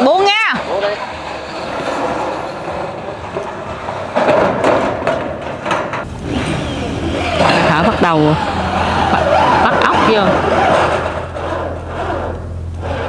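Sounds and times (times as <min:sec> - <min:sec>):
metal roofing sheets rattling: 0:00.0 - 0:12.0
sharp knocks: 0:03.2 - 0:06.5.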